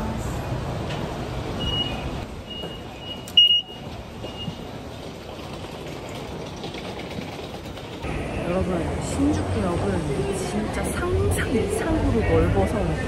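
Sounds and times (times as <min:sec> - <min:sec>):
busy station concourse noise: 0:00.0 - 0:05.0, 0:08.0 - 0:13.0.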